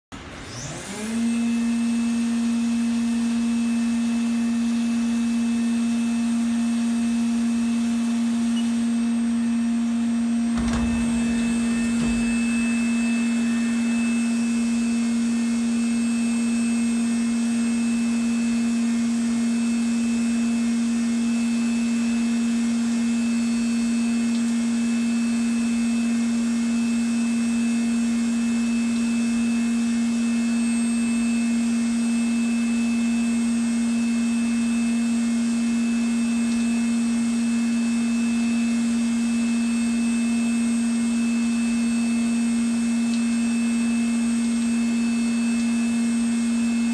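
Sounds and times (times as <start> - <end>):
machining centre humming: 10.4 - 16.9
faint high whine: 10.6 - 17.1.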